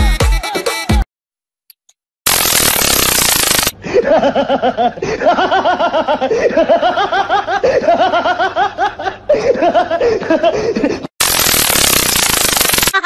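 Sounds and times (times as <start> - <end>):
person laughing: 3.8 - 11.1.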